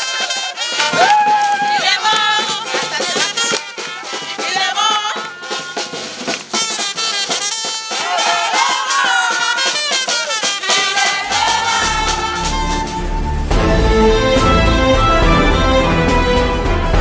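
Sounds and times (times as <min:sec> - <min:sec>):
drumming: 0:00.0 - 0:17.0
group singing and chanting: 0:01.6 - 0:06.2, 0:08.0 - 0:09.9, 0:10.5 - 0:13.4
rattling percussion: 0:02.6 - 0:14.5
deep bass: 0:11.2 - 0:17.0.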